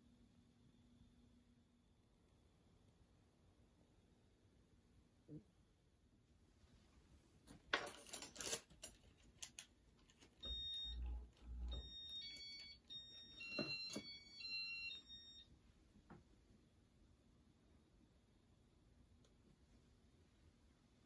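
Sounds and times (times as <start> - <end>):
electronic beeps at several pitches: 10.4 - 15.4.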